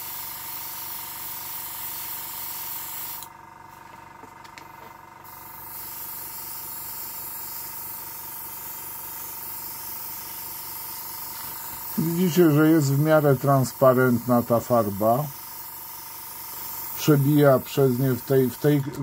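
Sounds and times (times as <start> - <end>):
airbrush hissing: 0.0 - 3.3, 5.2 - 19.0.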